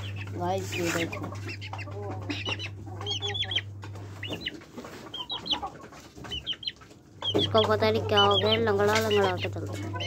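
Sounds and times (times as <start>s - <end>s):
chickens calling: 0.0s - 10.0s
chickens clucking: 0.0s - 10.0s
low steady hum: 0.0s - 10.0s.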